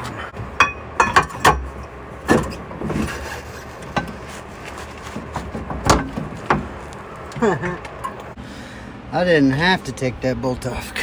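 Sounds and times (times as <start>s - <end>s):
pry bar clanking on metal: 0.6s - 3.2s.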